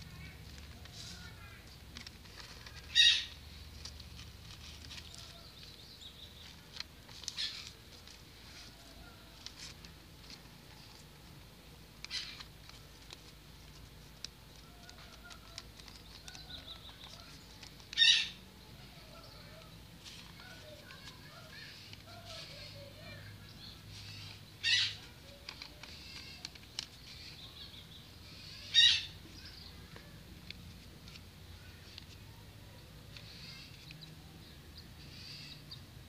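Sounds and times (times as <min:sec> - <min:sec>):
paper folding and rustling: 0:00.0 - 0:18.0, 0:18.8 - 0:23.3, 0:25.0 - 0:27.5.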